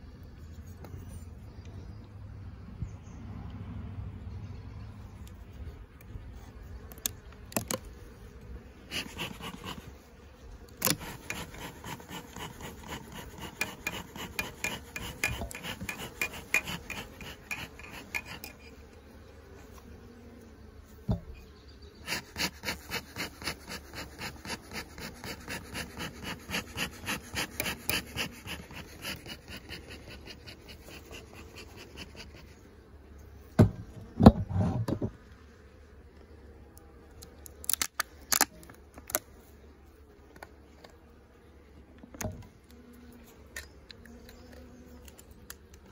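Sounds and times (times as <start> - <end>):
metal tool scraping wood: 8.9 - 9.9, 10.8 - 18.8, 22.0 - 32.5, 33.6 - 35.1.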